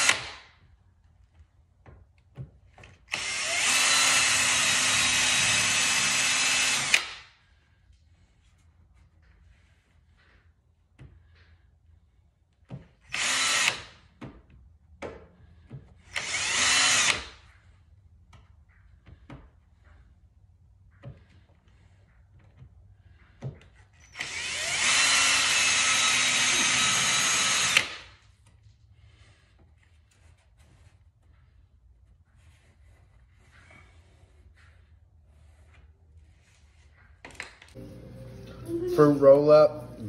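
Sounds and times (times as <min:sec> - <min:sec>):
power drill drilling metal: 0:00.0 - 0:00.4, 0:03.1 - 0:07.2, 0:13.1 - 0:13.9, 0:16.1 - 0:17.4, 0:24.0 - 0:28.1.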